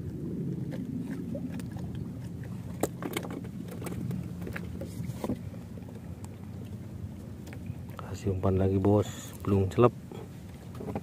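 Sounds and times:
low steady hum: 0.0 - 11.0
fishing gear clicking and knocking: 2.8 - 4.6.

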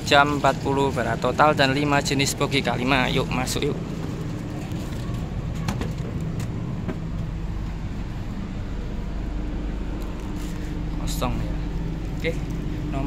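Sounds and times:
train low mechanical hum: 0.0 - 13.0.

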